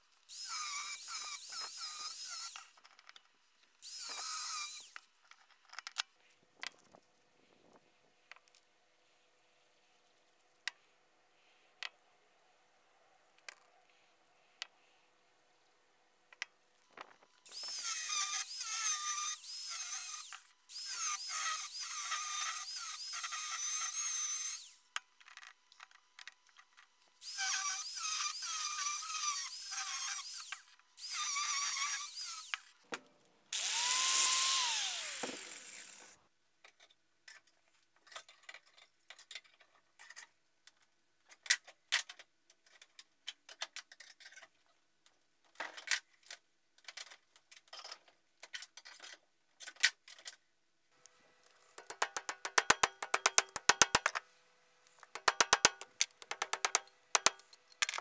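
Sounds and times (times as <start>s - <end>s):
angle grinder cutting steel pipe: 33.6s - 36.2s, 51.8s - 54.2s, 55.1s - 57.6s.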